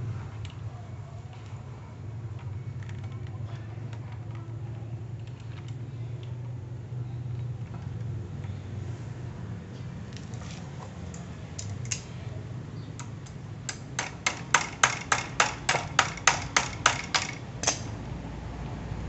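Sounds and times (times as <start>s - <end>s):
sharp metal clicks: 11.1s - 12.1s, 13.0s - 18.0s.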